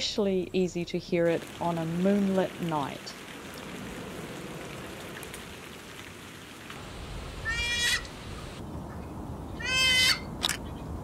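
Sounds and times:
weka calling: 7.4 - 8.6, 9.6 - 10.3.

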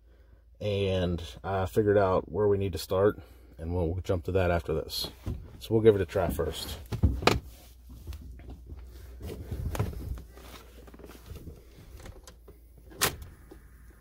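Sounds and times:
soft handling rustling: 4.8 - 12.8.

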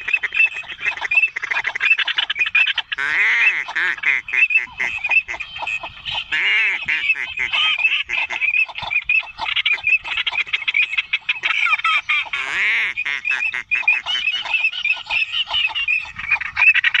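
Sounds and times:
waterfowl honking: 0.0 - 17.0
wavering bird call: 0.0 - 17.0.

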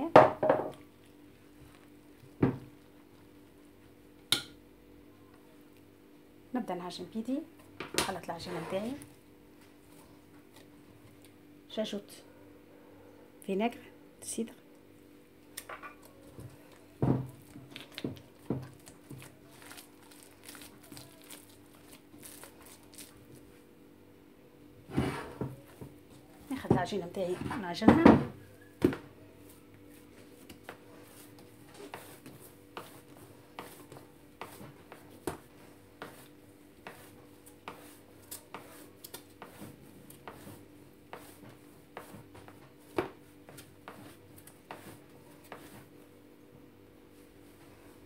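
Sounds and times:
hands kneading dough: 15.5 - 23.7, 25.6 - 46.4
fork stirring flour in bowl: 29.4 - 46.0.

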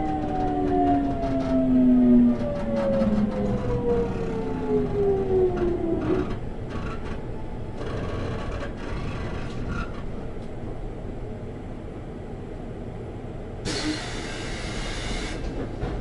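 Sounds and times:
train motor whine: 0.0 - 10.0, 13.7 - 15.7
wheels rumbling on rails: 0.0 - 16.0.

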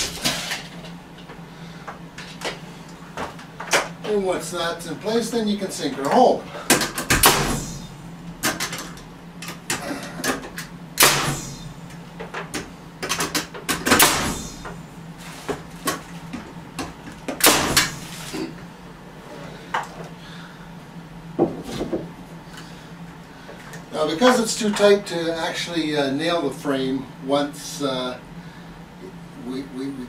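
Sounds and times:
nail gun shots: 6.9 - 7.8, 11.0 - 11.6, 13.8 - 14.6, 17.4 - 18.0.

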